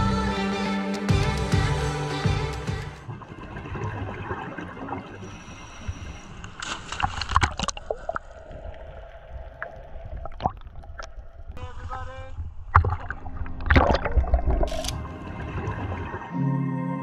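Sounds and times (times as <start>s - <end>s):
seawater sloshing and gurgling: 3.0s - 11.2s.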